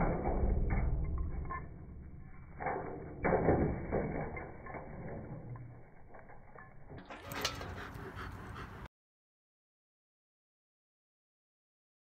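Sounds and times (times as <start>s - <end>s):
metal dog bowl clattering and scraping: 0.0s - 8.4s.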